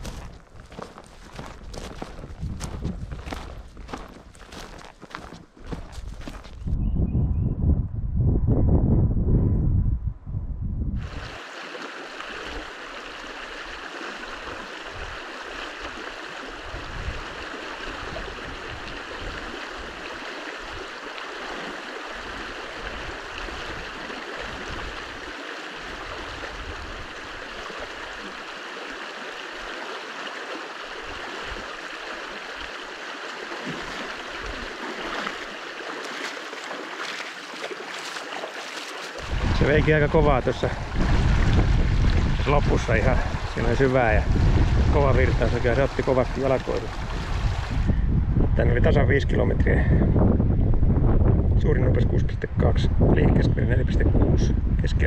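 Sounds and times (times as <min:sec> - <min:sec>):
stream rushing: 0:11.0 - 0:47.9
low bumps underwater: 0:38.8 - 0:48.0.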